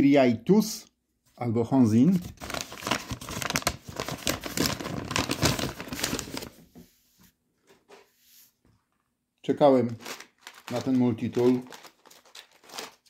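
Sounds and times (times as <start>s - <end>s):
paper envelope crinkling: 2.2s - 6.6s, 9.7s - 13.0s.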